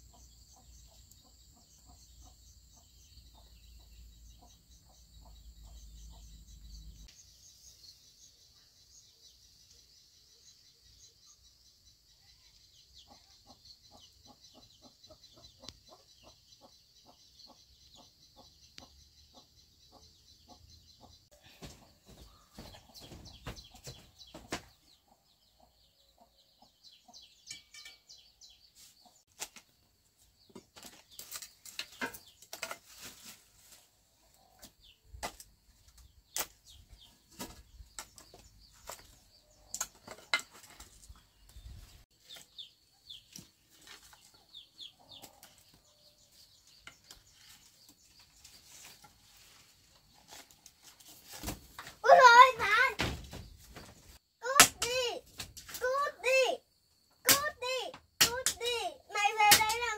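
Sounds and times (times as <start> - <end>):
firewood and pots clattering: 27.5 - 28.1, 30.5 - 33.5, 37.2 - 41.3
chickens clucking: 43.3 - 50.2.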